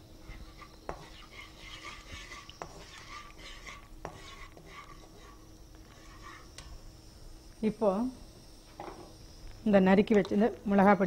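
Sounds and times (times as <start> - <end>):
spices sizzling in oil: 0.0 - 11.0
metal spatula scraping pan: 0.3 - 6.5.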